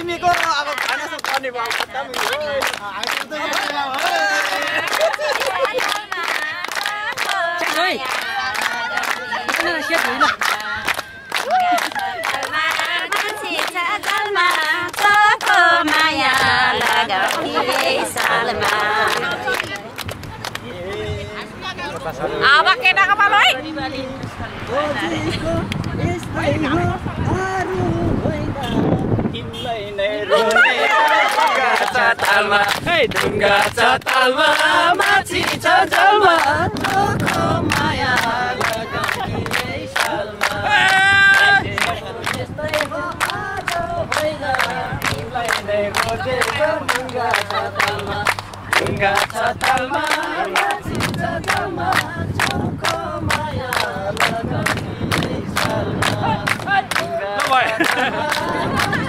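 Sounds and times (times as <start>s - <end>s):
hand clapping: 0.0s - 21.0s, 30.4s - 59.0s
women singing a folk song: 3.4s - 20.0s, 30.3s - 57.2s.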